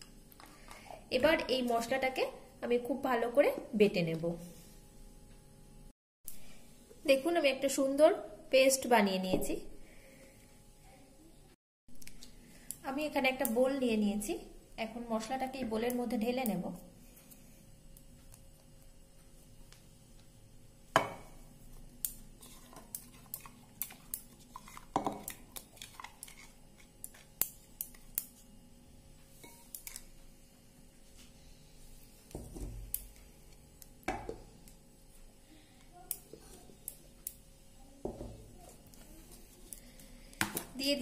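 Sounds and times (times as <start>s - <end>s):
spoon scraping and tapping bowl: 29.4s - 30.1s.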